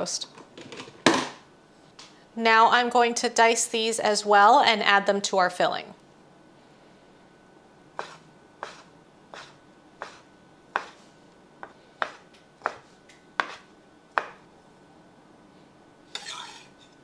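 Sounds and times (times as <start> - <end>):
knife tapping on cutting board: 14.2 - 14.4.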